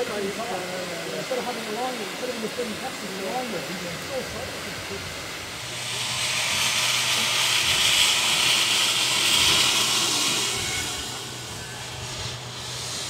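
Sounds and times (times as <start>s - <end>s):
steady low hum: 0.0s - 13.0s
steam locomotive hissing steam: 0.0s - 13.0s.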